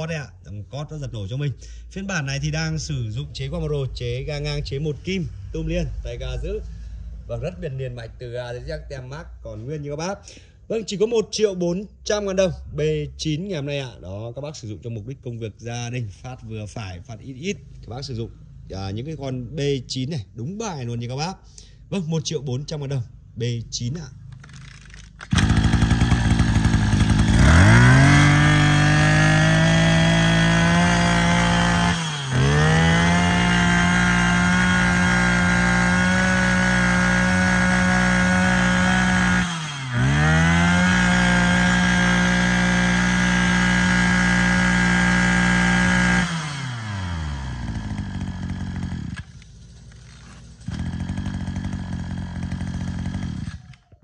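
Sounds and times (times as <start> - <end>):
brush cutter engine: 24.3 - 54.0.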